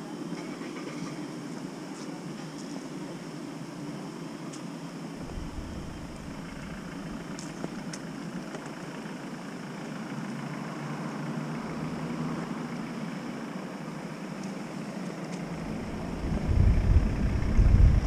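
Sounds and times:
vehicle engine low rumble: 5.2 - 13.4, 15.2 - 18.0.

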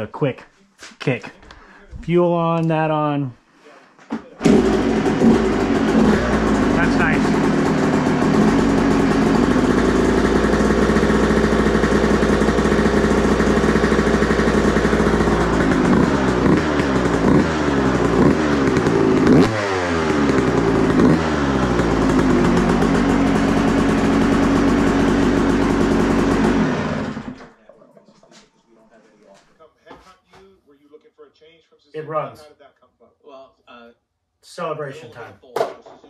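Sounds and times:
dirt bike engine idling and revving: 4.4 - 27.4.

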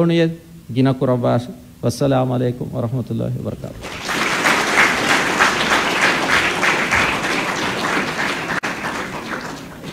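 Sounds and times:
audience applauding: 3.8 - 9.9.

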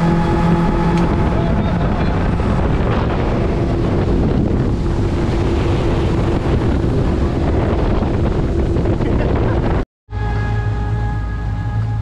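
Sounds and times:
wind buffeting microphone: 0.0 - 10.8
outboard motor running: 0.0 - 12.0
water rushing past hull: 0.0 - 12.0.

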